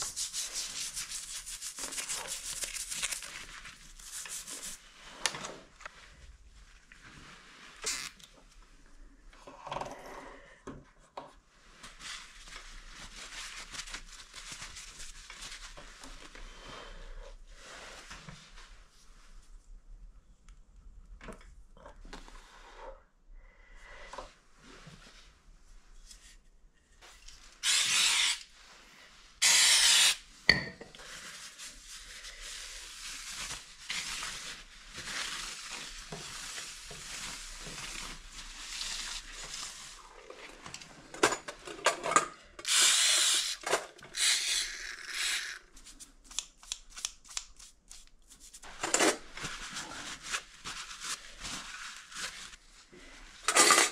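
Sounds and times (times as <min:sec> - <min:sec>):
brush in a steel bowl: 0:00.0 - 0:04.9.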